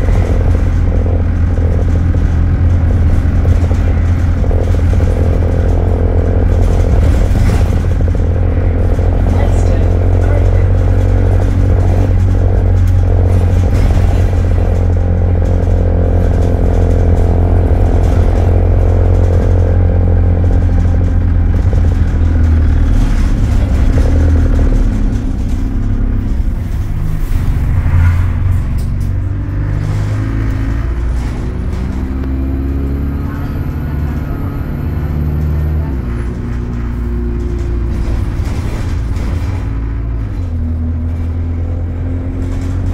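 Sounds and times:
bus diesel engine rumbling: 0:00.0 - 0:42.9.

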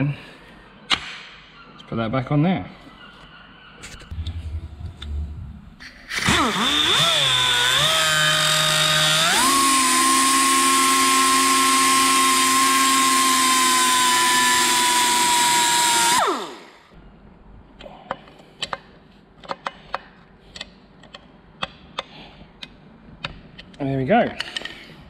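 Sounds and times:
angle grinder cutting bolt: 0:05.8 - 0:16.9.

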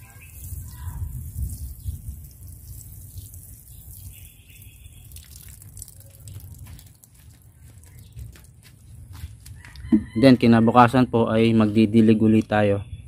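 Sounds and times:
water splattering onto soil: 0:00.0 - 0:09.6.

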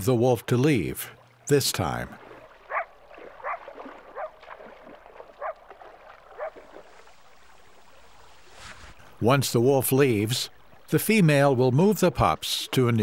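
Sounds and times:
coyotes barking: 0:02.7 - 0:04.4, 0:05.4 - 0:05.6, 0:06.4 - 0:06.6.

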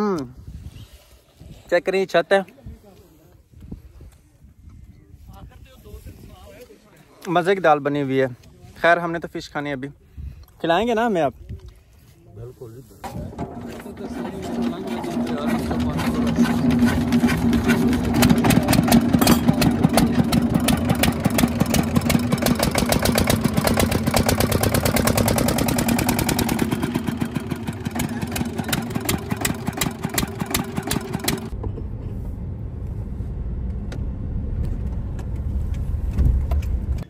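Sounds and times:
diesel engine knocking clatter: 0:13.4 - 0:31.9
low rumble: 0:31.5 - 0:37.0.

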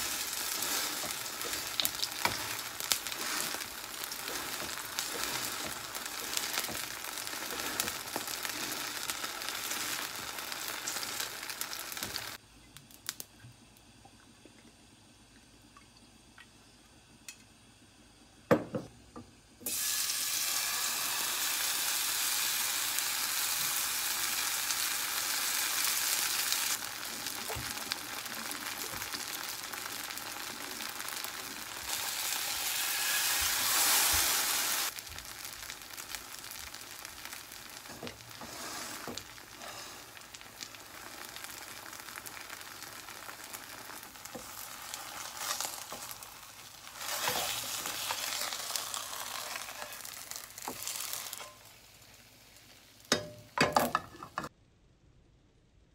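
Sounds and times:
batter sizzling in oil: 0:00.0 - 0:13.2, 0:19.6 - 0:54.4.

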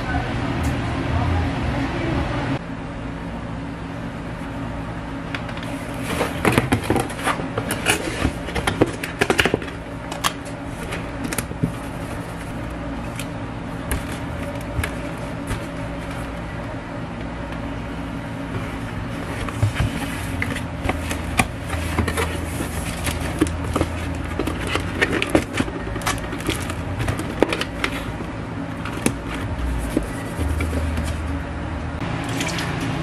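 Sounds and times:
low machine hum: 0:00.0 - 0:33.0
cardboard boxes being folded: 0:05.6 - 0:31.4.

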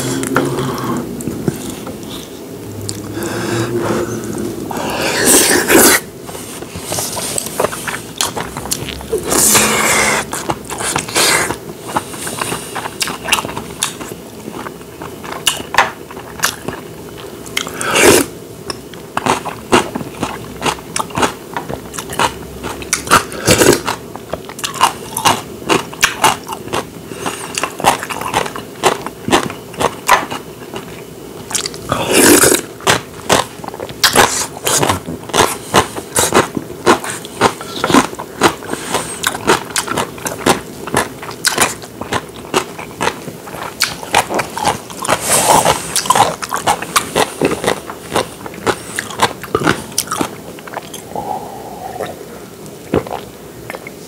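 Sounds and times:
man chewing and smacking: 0:06.2 - 0:17.8, 0:18.6 - 0:54.0.

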